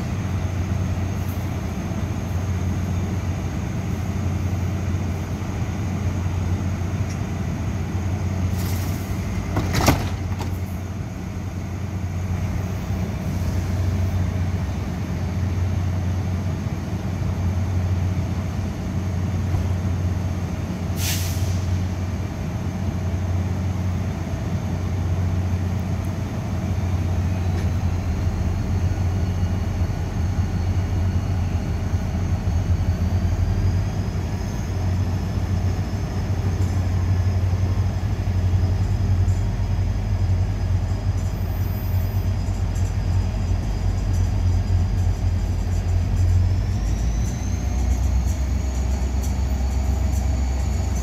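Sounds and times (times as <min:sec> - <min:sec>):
train rumbling: 0:00.0 - 0:51.0
air hiss: 0:08.5 - 0:09.3, 0:20.9 - 0:21.9.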